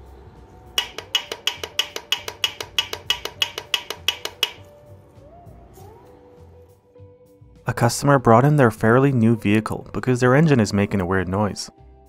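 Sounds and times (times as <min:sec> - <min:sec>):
metal clacking on metal: 0:00.8 - 0:04.7.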